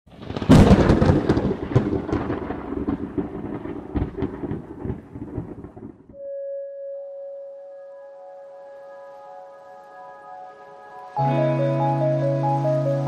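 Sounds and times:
rolling thunder rumble: 0.1 - 6.2
thunderclap: 0.1 - 6.2.

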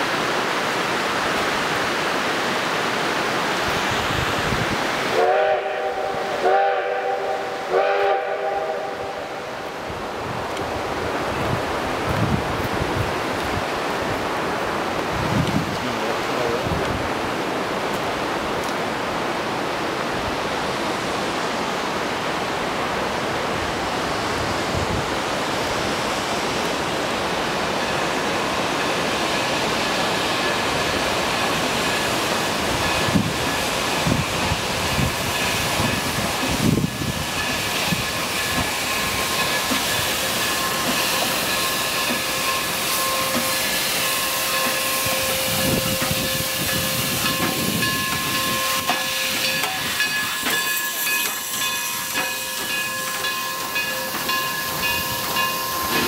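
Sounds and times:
steam train squealing: 27.8 - 56.0.

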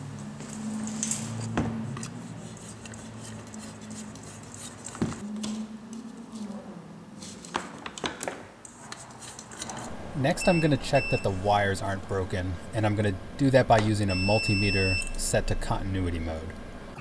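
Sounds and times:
low steady hum: 9.9 - 17.0.

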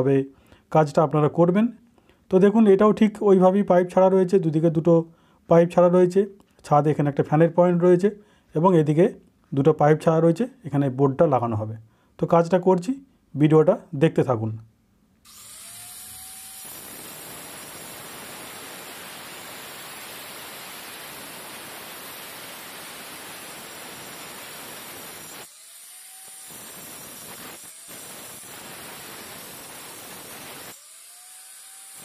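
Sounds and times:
angle grinder cutting brick: 15.2 - 32.0.

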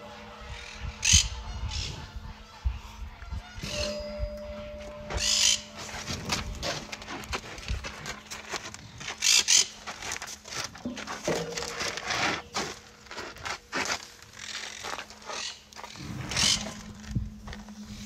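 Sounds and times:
rhinoceroses moving on dry straw: 5.2 - 18.0.

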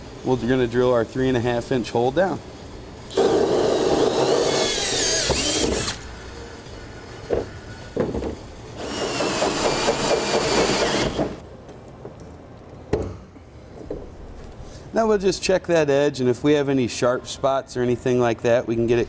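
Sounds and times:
drill hole saw cutting whine: 3.1 - 6.2.

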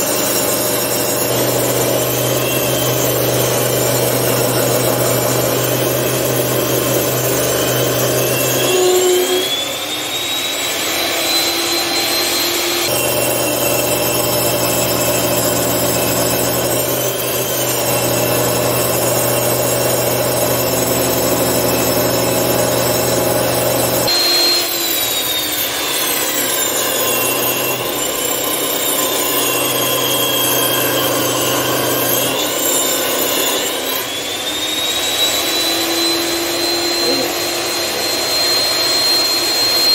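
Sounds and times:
woodworking machine cutting wood: 0.0 - 39.9.

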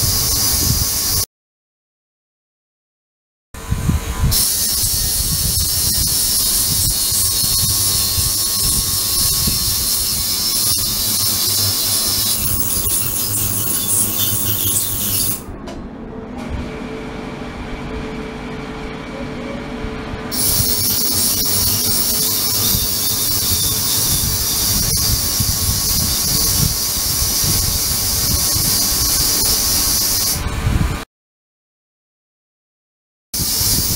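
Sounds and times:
ultrasonic cleaner hiss: 25.2 - 30.4.

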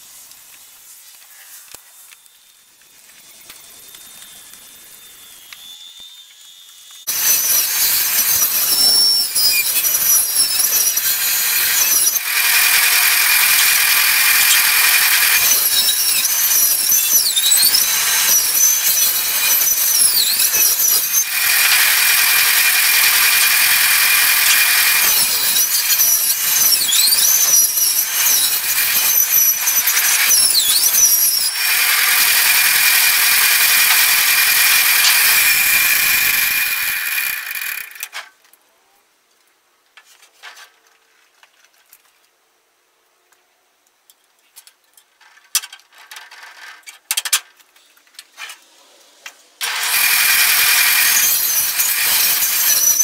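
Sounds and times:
high squeals: 3.0 - 38.1, 49.6 - 53.0
table saw cutting wood: 4.6 - 38.2, 49.6 - 53.0.

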